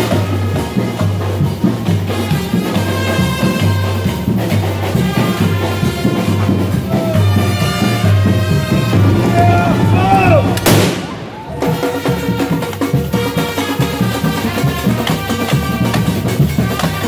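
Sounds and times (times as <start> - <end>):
crowd voices: 0.0 - 17.0
cannon firing loud bang: 9.0 - 11.6.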